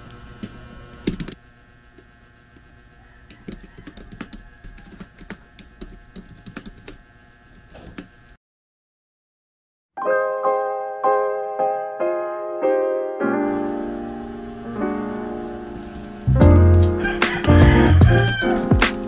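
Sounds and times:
typing on computer keyboard: 0:03.4 - 0:07.0.

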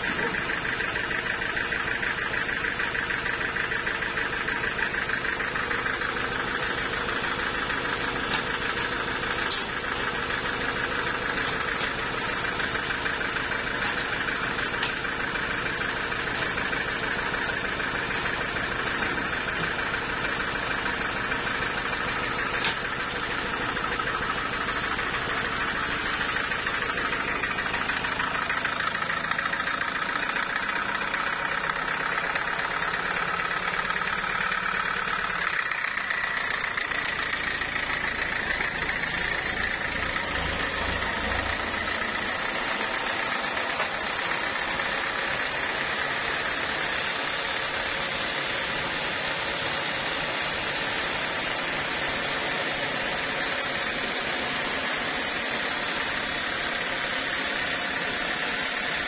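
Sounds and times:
band sawmill sawing a log: 0:04.0 - 0:59.0.

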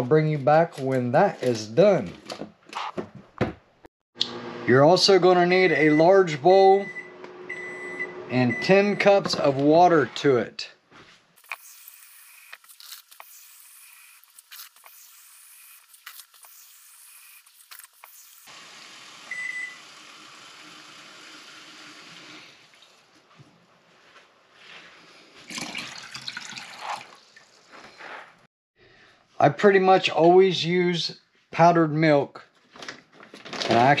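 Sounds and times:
water pouring into plastic bowl: 0:25.5 - 0:27.4.

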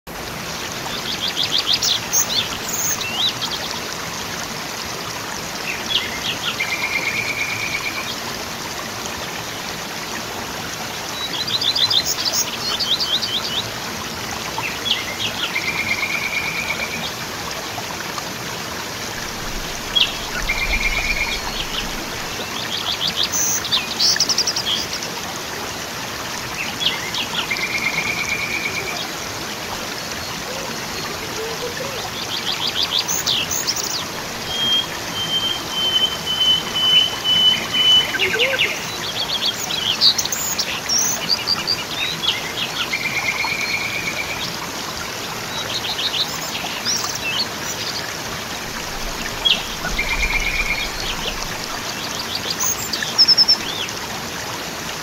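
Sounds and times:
waterfall rushing: 0:00.1 - 0:55.0
birds singing: 0:19.2 - 0:25.1, 0:26.5 - 0:44.6, 0:45.5 - 0:54.0.

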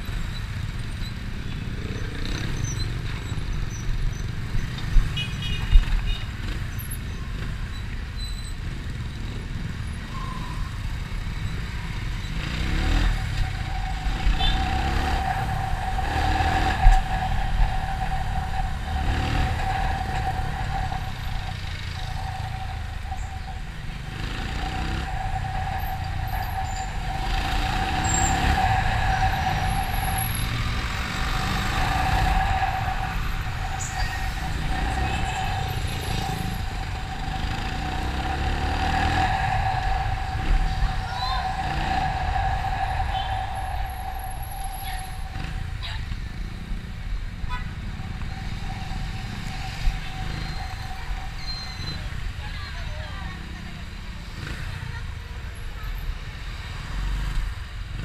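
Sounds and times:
motorcycle engine revving: 0:11.8 - 0:55.0
steady high tone: 0:12.2 - 0:53.5.

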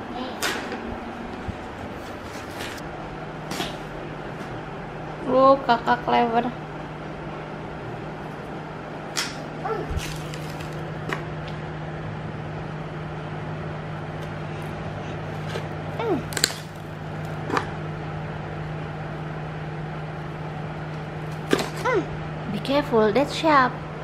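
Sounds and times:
steady low hum: 0:00.0 - 0:24.0
child vocalizing: 0:09.6 - 0:10.0, 0:16.0 - 0:16.3, 0:21.8 - 0:22.2.

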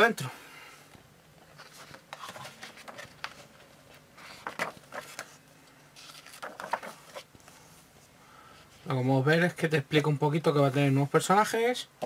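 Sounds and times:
book pages turning: 0:01.4 - 0:07.7.

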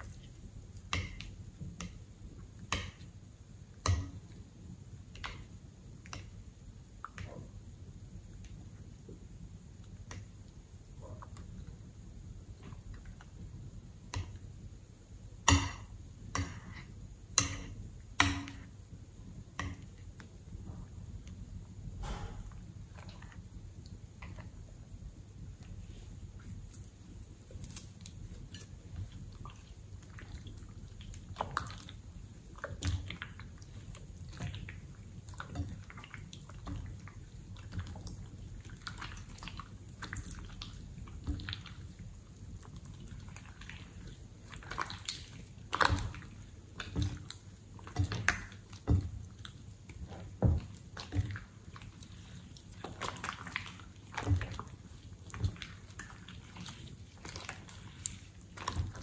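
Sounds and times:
slime squishing by hand: 0:25.7 - 0:59.0.

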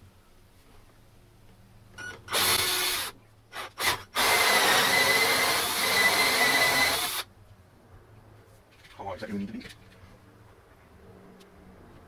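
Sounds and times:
drill cutting into wood: 0:02.3 - 0:07.3.

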